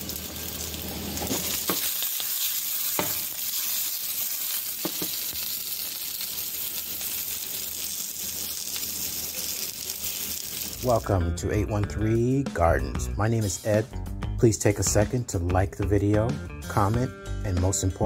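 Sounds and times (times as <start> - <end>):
peppers sizzling in a skillet: 0.0 - 11.1.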